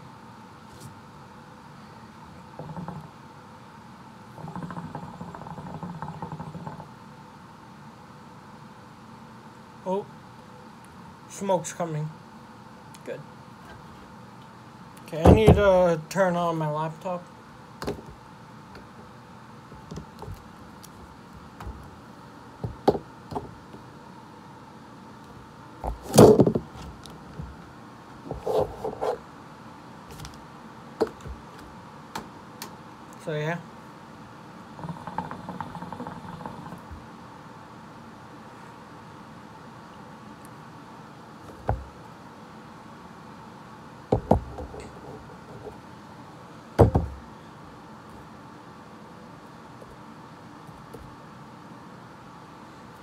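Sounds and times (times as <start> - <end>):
steady low hiss: 0.0 - 53.0
dull knocks: 15.2 - 15.7, 22.6 - 23.5, 44.1 - 45.8, 46.8 - 47.2.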